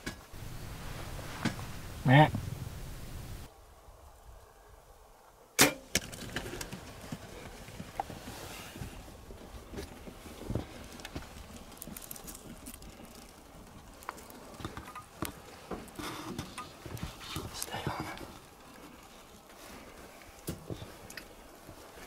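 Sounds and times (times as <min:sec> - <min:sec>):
animal running over gravel: 0:05.9 - 0:22.0.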